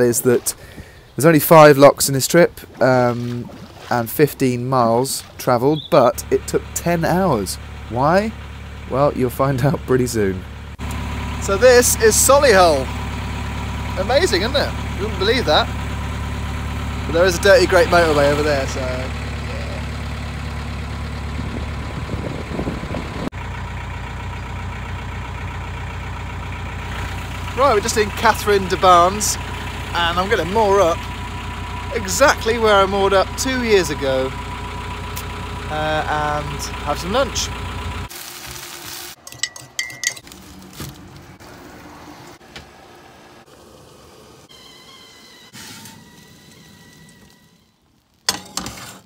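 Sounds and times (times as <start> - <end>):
boat diesel engine running: 0.0 - 38.1, 39.8 - 47.3
wind: 0.0 - 49.0
greens sizzling in a frying pan: 38.1 - 39.2
fork clinking against ceramic mug: 39.2 - 40.2.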